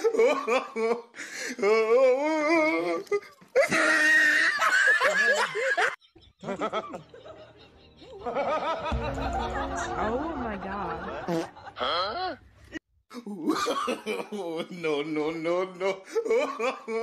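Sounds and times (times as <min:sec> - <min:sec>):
hearty laughter: 0:04.4 - 0:12.4.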